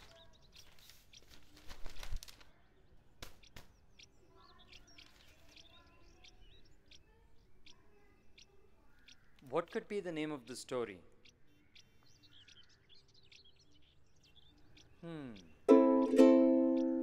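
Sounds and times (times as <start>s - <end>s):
paper snaps: 0.0s - 2.5s, 3.2s - 3.7s
newspaper pages rustling: 0.0s - 2.6s
small birds chirping: 0.0s - 17.0s.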